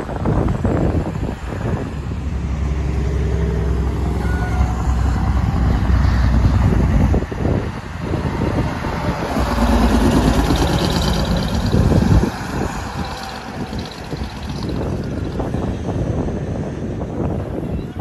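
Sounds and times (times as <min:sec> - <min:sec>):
truck diesel engines running: 0:00.0 - 0:17.7
truck driving past: 0:02.2 - 0:16.2.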